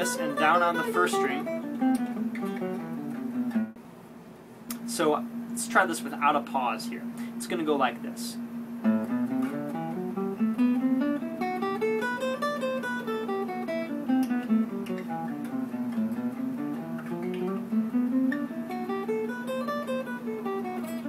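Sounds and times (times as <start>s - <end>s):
steady low guitar note: 0.0s - 3.0s
acoustic guitar picking scale notes: 0.0s - 3.8s, 4.7s - 21.0s.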